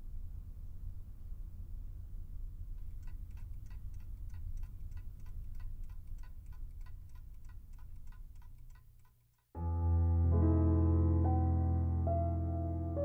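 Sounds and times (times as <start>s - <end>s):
low hum: 0.0s - 6.8s
mechanical alarm clock ticking: 2.8s - 9.6s.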